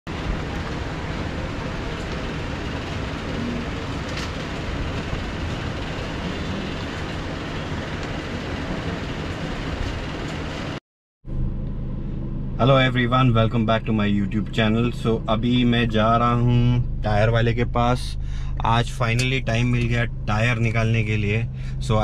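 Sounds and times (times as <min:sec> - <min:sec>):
traffic and street noise: 0:00.1 - 0:12.9, 0:18.7 - 0:22.0
low hum: 0:00.1 - 0:22.0.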